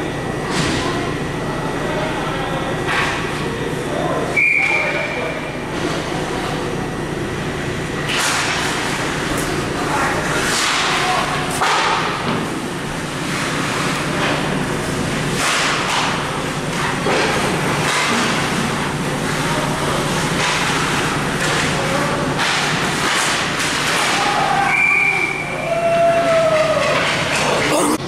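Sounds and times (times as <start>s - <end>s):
crowd noise: 0.0s - 8.1s, 27.1s - 28.0s
steady hum: 0.0s - 24.2s
referee whistle: 4.4s - 5.2s, 24.7s - 25.6s.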